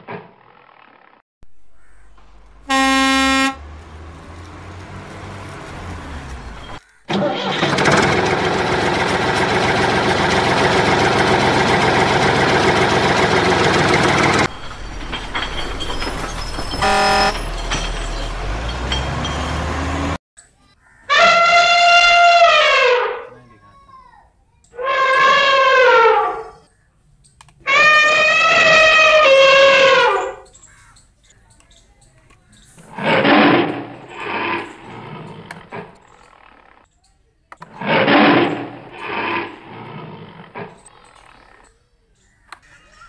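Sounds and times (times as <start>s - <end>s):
vehicle engine running: 1.5s - 14.6s
vehicle horn tooting: 2.6s - 3.8s, 16.7s - 17.6s, 21.1s - 23.1s.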